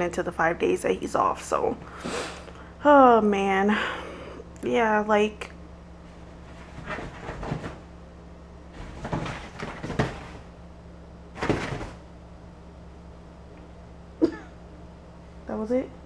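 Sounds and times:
rustling on leather couch: 6.0s - 8.0s.

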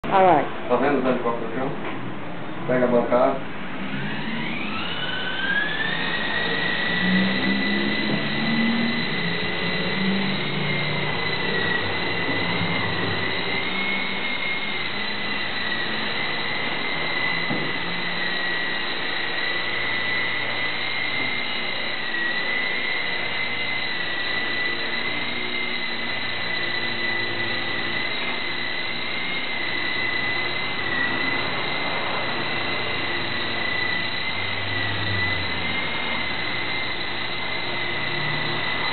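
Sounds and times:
radio-controlled helicopter whining: 0.1s - 1.8s, 2.6s - 38.9s.

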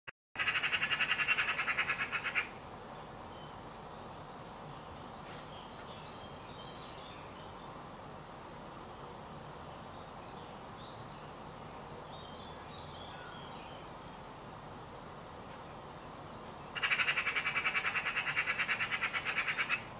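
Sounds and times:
magpie rattling chatter: 0.4s - 2.5s, 16.8s - 19.9s.

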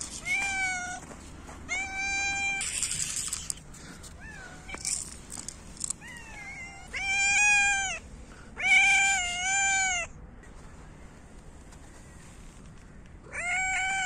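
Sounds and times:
cat meowing: 0.2s - 1.0s, 1.7s - 2.7s, 4.2s - 5.0s, 5.9s - 8.0s, 8.6s - 10.1s, 13.3s - 14.0s.

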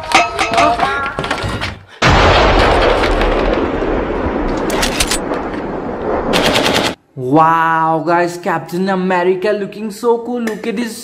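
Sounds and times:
explosion blast: 2.0s - 6.5s
rapid gunshot volleys: 6.3s - 7.0s.

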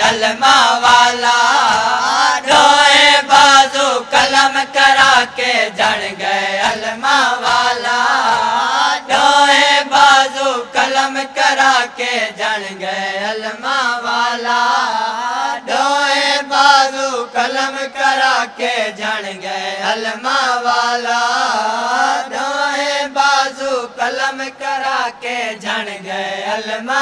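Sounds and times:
men chanting through microphones: 0.0s - 27.0s.

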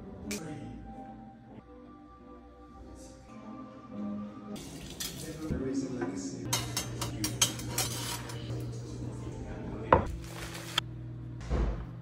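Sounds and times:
dishes and utensils clinking: 4.6s - 8.8s.

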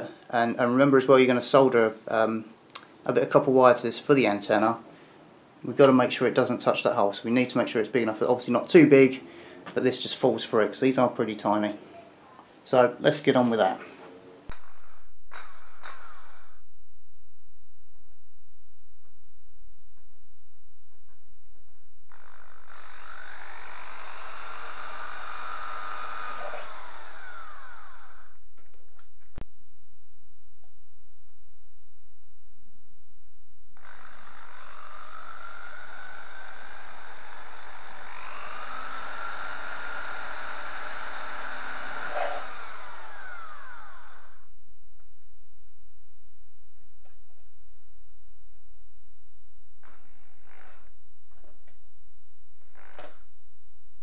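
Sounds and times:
electric drill boring through tin: 14.5s - 16.6s, 22.1s - 28.4s, 33.8s - 44.5s, 49.8s - 51.0s, 52.6s - 53.3s.

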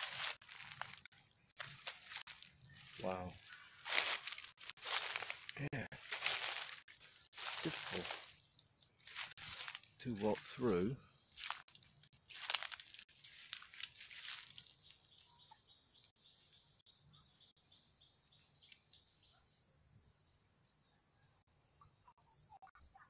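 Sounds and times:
footsteps crunching through dry leaves: 0.0s - 8.4s, 9.0s - 15.3s.

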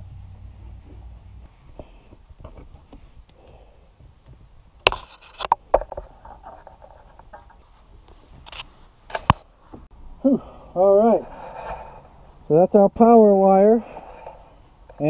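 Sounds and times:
cable insulation scraping and rustling: 4.9s - 9.8s.

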